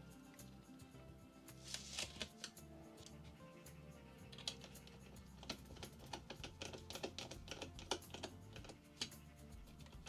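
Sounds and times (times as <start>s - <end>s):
screwdriver clicks and taps: 5.4s - 9.2s.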